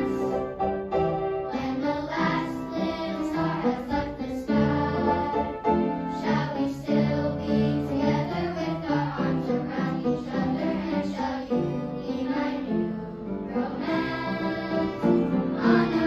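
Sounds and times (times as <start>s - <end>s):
children's choir singing: 0.0s - 16.0s
piano accompaniment: 0.0s - 16.0s.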